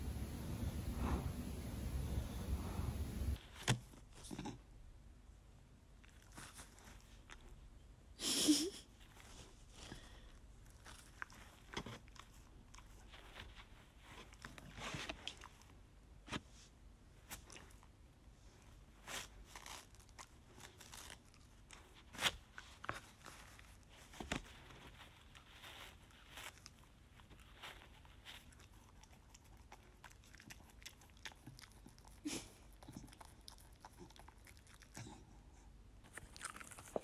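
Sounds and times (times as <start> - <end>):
dog chewing and tearing tissue: 6.0 - 7.4, 9.0 - 15.8, 18.7 - 35.2, 36.0 - 37.0.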